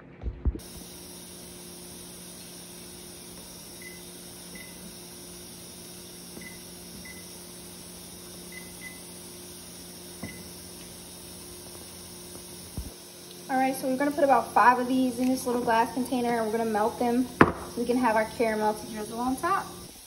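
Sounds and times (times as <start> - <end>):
microwave keypad beeps: 6.4 - 7.4, 8.5 - 9.1.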